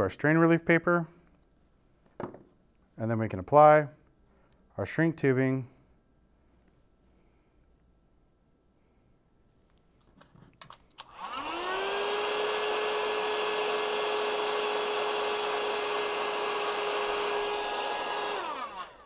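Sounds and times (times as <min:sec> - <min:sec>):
heat gun fan whine: 0:11.0 - 0:19.0.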